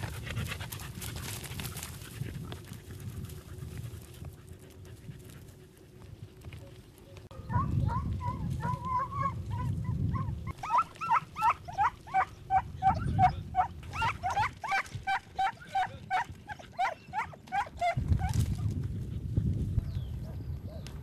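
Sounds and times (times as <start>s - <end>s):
dog yelping: 7.4s - 18.4s.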